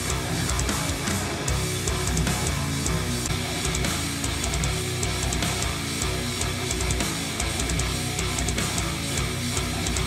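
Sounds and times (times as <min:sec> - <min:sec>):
metal music through speakers: 0:00.0 - 0:10.0.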